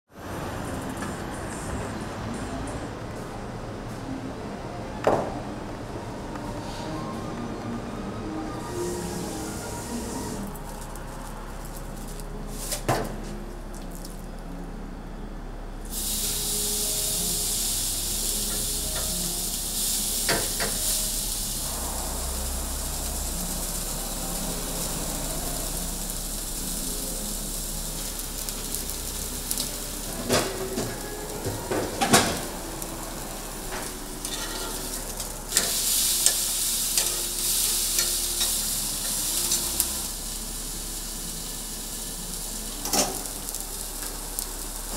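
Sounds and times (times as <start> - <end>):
steak sizzling: 8.7 - 14.2, 15.9 - 44.9.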